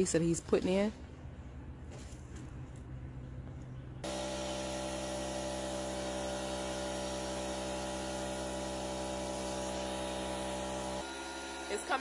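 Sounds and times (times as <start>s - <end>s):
air compressor running: 4.0s - 12.0s.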